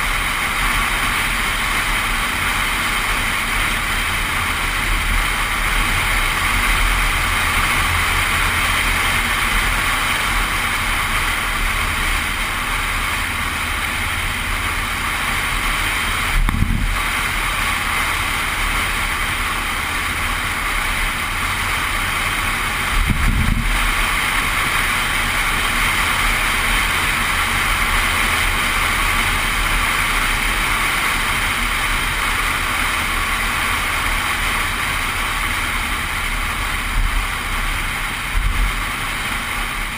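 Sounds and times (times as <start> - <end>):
low engine drone: 0.0 - 39.9
wind and road noise: 0.0 - 39.9
wind buffeting microphone: 16.2 - 17.1, 22.8 - 24.1
low thumps: 16.4 - 17.0, 23.0 - 23.8.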